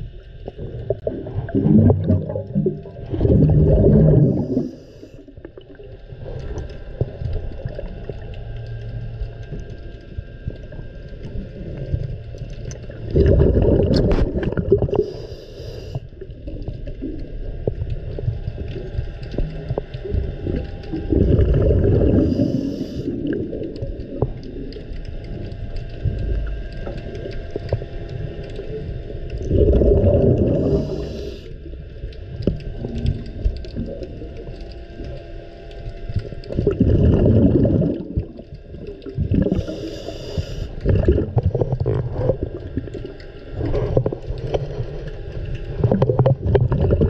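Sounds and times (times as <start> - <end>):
underwater low rumble: 0.0 - 47.0
gurgling water rush: 0.6 - 4.9, 29.4 - 31.4, 36.5 - 38.4.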